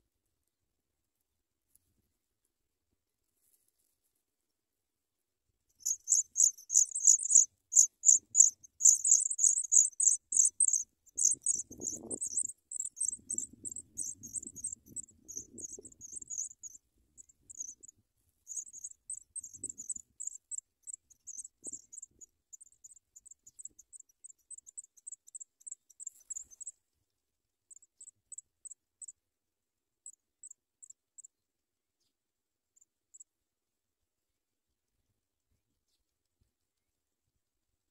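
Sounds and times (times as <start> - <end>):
nestlings cheeping: 5.8 - 16.8, 17.5 - 17.8, 18.5 - 22.1.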